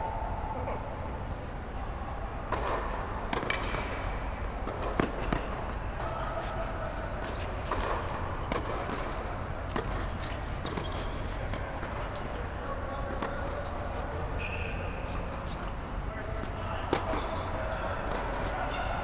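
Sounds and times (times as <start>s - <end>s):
tennis ball bounces: 2.5s - 4.0s, 4.6s - 5.8s, 7.2s - 9.1s, 16.4s - 18.5s.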